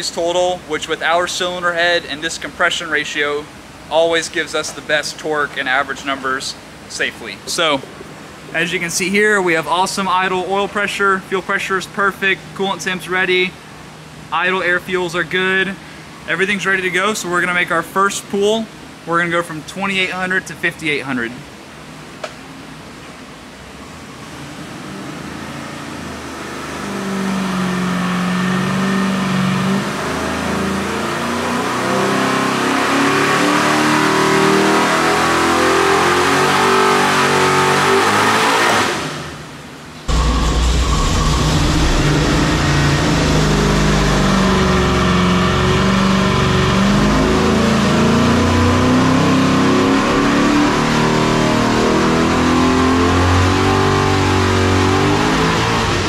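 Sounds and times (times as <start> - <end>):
engine rumbling up close: 0.0 - 37.8, 38.8 - 56.0
engine at full throttle: 24.2 - 39.5, 40.1 - 56.0.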